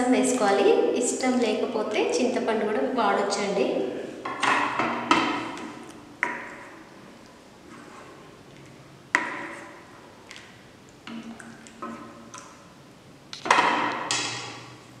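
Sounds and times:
ladle knocking metal pot: 0:04.3 - 0:06.8, 0:09.2 - 0:09.9.

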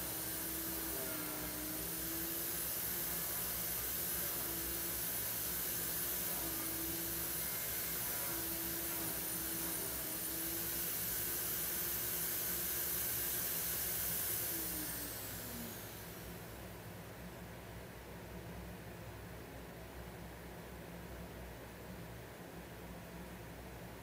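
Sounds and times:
electric motor humming: 0:00.0 - 0:16.5.

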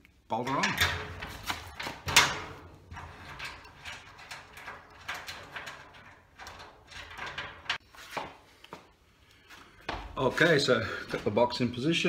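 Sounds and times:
metal nut clicking and scraping: 0:00.5 - 0:07.8.

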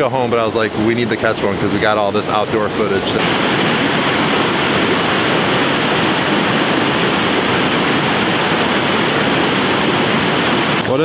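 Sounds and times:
river rapids rushing over rocks: 0:02.3 - 0:11.0.

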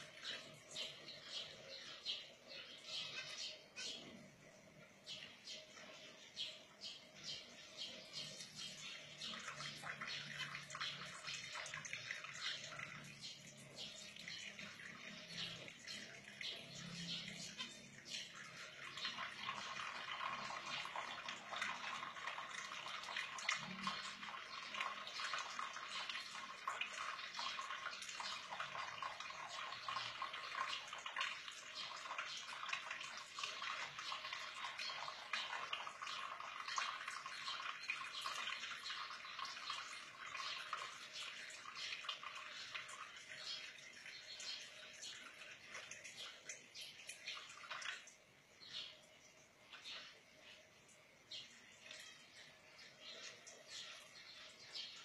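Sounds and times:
water splashing in metal sink: 0:08.7 - 0:48.3.

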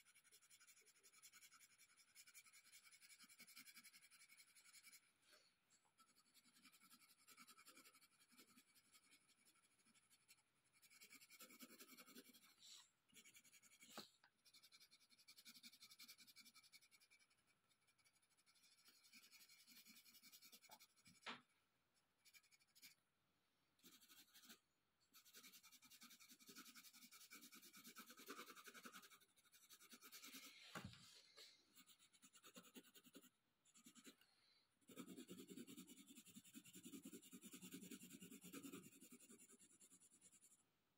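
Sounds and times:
pencil scratching on paper: 0:00.0 - 0:05.2, 0:05.9 - 0:21.5, 0:22.2 - 0:23.0, 0:23.8 - 0:34.2, 0:34.8 - 0:40.6.

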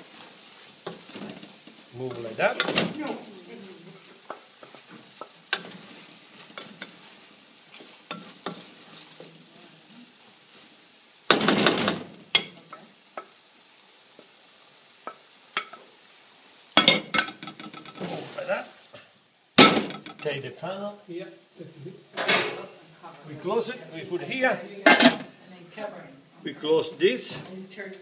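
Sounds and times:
faint sizzle: 0:00.0 - 0:28.0
spoon knocking against pan: 0:15.0 - 0:15.8, 0:16.8 - 0:18.0
spoon clatter: 0:16.8 - 0:18.0.

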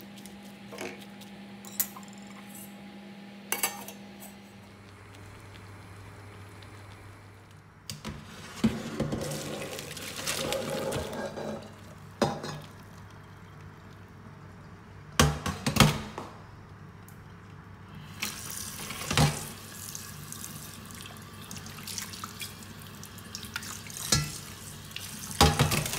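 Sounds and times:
low steady hum: 0:00.0 - 0:25.9
water splashing into colander: 0:09.1 - 0:12.9, 0:18.1 - 0:25.9
metal pot clanking: 0:10.6 - 0:12.7, 0:24.1 - 0:24.4.

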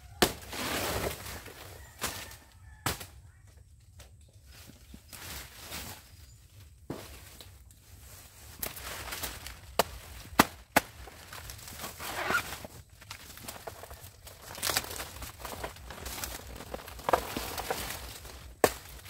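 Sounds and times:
dry leaves crackling and tearing: 0:00.0 - 0:03.2, 0:07.2 - 0:19.0.

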